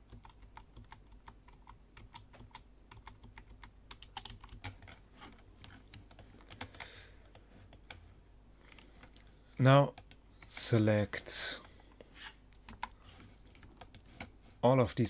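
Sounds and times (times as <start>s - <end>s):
computer keyboard keystrokes: 0.0s - 5.0s, 5.6s - 8.0s
low steady hum: 0.0s - 15.0s.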